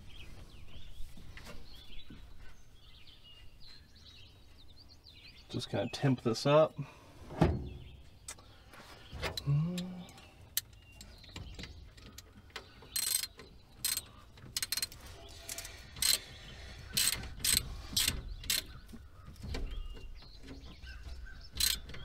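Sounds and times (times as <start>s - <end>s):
ratchet wrench clicking: 13.0s - 14.0s, 14.6s - 16.2s, 17.0s - 18.6s, 21.6s - 21.8s.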